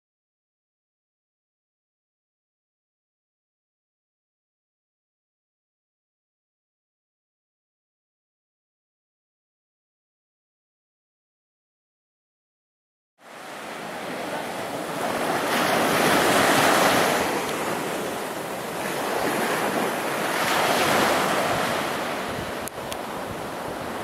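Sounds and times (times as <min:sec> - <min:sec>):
surf breaking on beach: 0:13.2 - 0:24.0
wind on microphone: 0:14.1 - 0:24.0.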